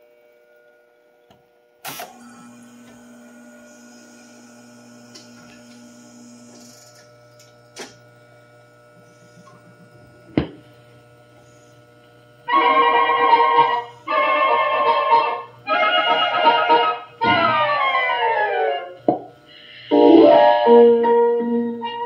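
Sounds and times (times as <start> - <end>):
mechanical hum: 0.0 - 22.0
record changer clicks: 1.9 - 8.2
jukebox record playing: 2.1 - 19.0.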